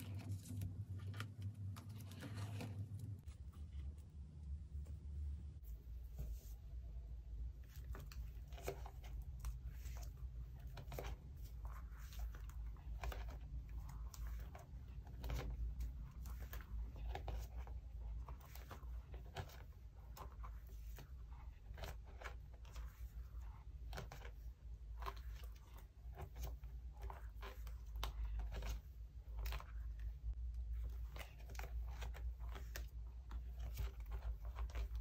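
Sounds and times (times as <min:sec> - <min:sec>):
low hum: 0:00.0 - 0:07.5
plastic sleeves crinkling: 0:07.7 - 0:35.0.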